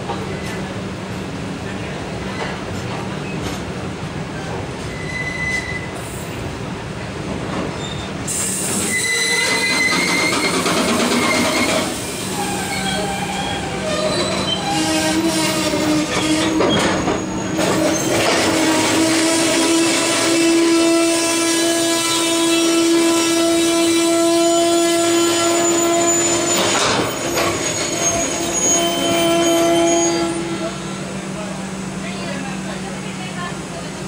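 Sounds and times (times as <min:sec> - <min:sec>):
freight train rolling past: 0:00.0 - 0:34.0
high wheel squeals: 0:04.9 - 0:06.3, 0:07.8 - 0:21.1, 0:22.0 - 0:31.0.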